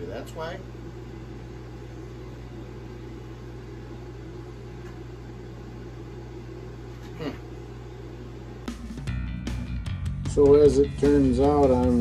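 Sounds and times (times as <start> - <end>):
low electrical hum: 0.0 - 8.7.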